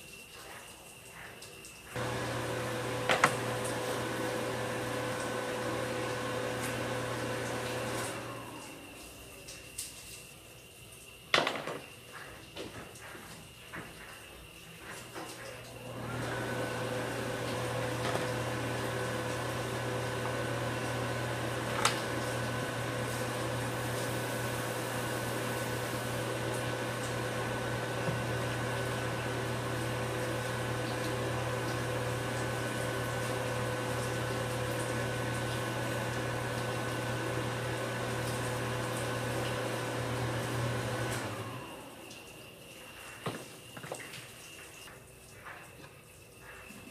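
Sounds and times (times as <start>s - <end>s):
electric appliance motor humming: 1.9s - 9.4s, 15.7s - 42.5s.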